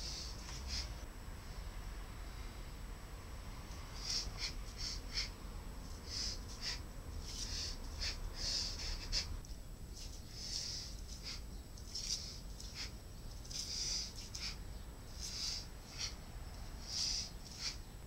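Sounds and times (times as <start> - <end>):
sharp hissing exhalations: 0.0 - 1.0, 3.9 - 5.4, 6.0 - 9.4, 10.0 - 17.9.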